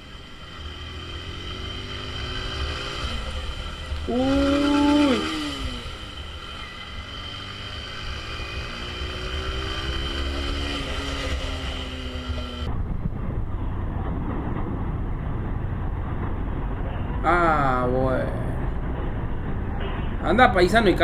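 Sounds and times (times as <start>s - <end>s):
motorcycle engine accelerating: 0.0s - 13.4s
wind rush on microphone: 12.6s - 17.8s.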